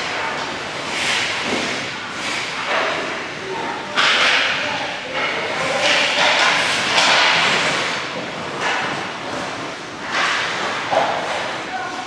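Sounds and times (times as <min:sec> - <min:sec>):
skate blades scraping ice: 0:00.0 - 0:02.8, 0:05.8 - 0:11.6.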